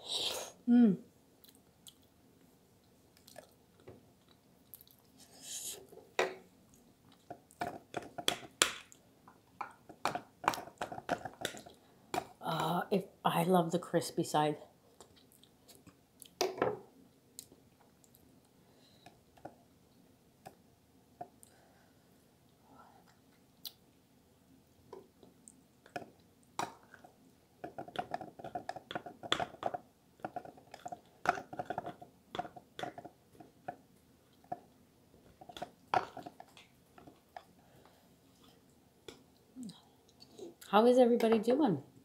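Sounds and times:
close chewing and mouth clicks: 1.4s - 5.2s, 6.7s - 12.3s, 15.0s - 16.4s, 17.1s - 18.4s, 25.0s - 37.6s.

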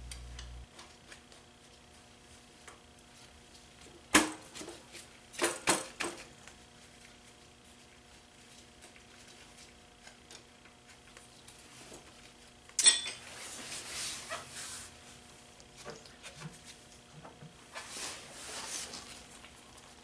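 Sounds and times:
faint steady hum: 0.0s - 20.0s
rustling and scraping: 13.2s - 20.0s.

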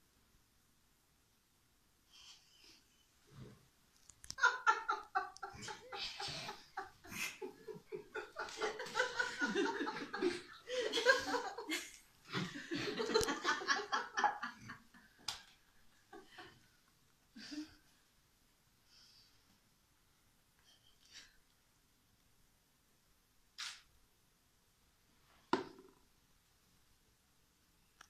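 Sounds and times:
person laughing: 4.2s - 14.7s.

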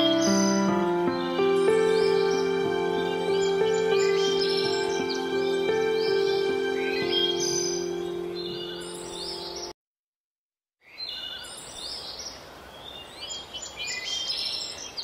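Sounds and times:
background music with held notes: 0.0s - 9.7s
birds chirping: 0.0s - 9.7s.

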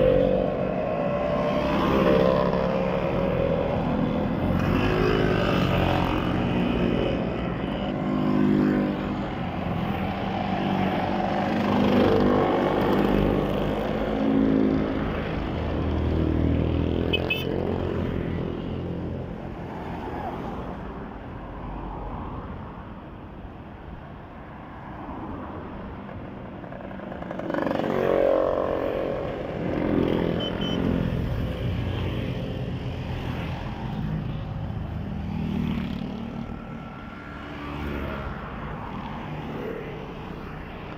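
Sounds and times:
motor scooters riding past: 0.0s - 17.1s, 26.0s - 34.2s, 35.1s - 40.9s
traffic passing: 0.0s - 40.9s.

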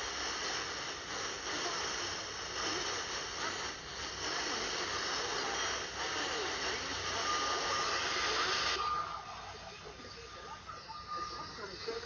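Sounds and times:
radio static hiss: 0.0s - 12.0s
faint warbling tones: 7.2s - 12.0s.

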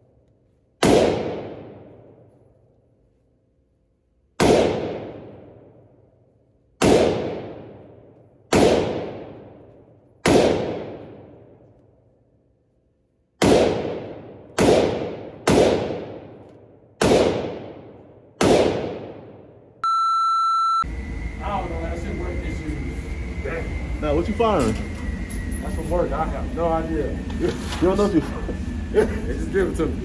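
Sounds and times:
pistol shots echoing indoors: 0.2s - 3.2s, 3.8s - 19.8s.

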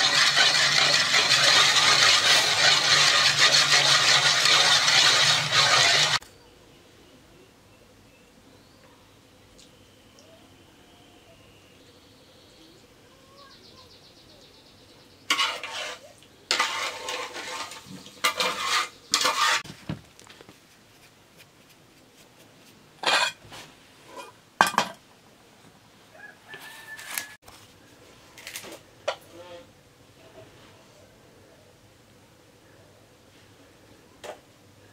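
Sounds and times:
hands mixing dough in metal bowl: 0.0s - 6.2s, 15.3s - 23.6s
metal spoon scraping pot: 0.0s - 6.2s, 15.3s - 19.7s, 23.0s - 23.4s
metal bowl clank: 23.0s - 23.4s.

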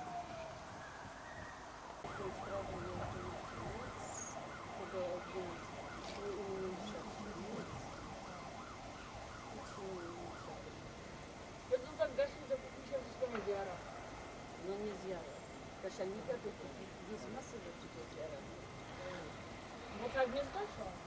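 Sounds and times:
emergency siren wailing and yelping: 0.0s - 10.8s
lower siren tone wavering: 0.0s - 11.8s.

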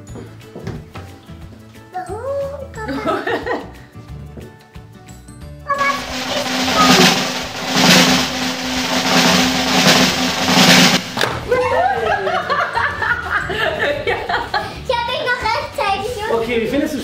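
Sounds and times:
suspense music with drum hits: 5.8s - 11.4s.

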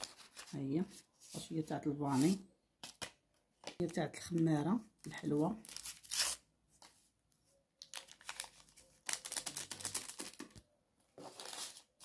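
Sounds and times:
sachet crinkling and tearing: 7.8s - 10.6s.

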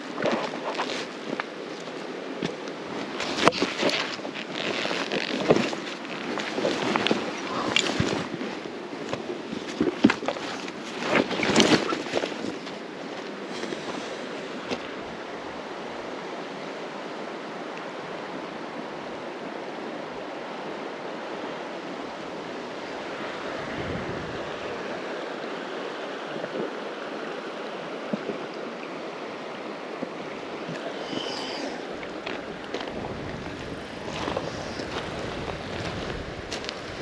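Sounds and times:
river water rushing: 0.0s - 37.0s.

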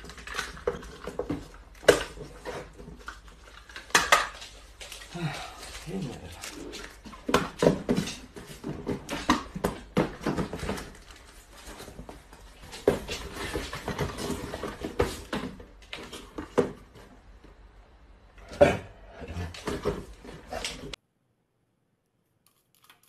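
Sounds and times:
cardboard boxes knocking on tile floor: 6.7s - 17.2s.

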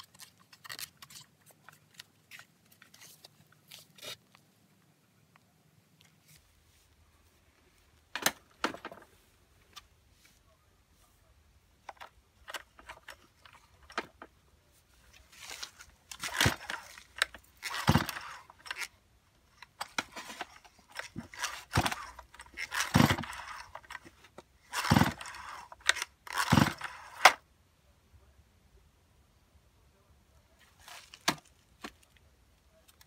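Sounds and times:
chainsaw pull-start whirr: 16.1s - 19.0s, 19.8s - 27.4s
engine turning over thump: 22.7s - 23.4s, 24.7s - 25.4s, 26.4s - 26.9s.

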